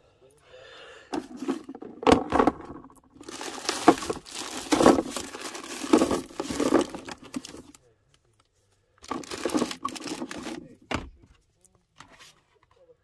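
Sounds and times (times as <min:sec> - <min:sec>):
plastic bags crinkling: 0:01.2 - 0:07.8, 0:09.0 - 0:10.8.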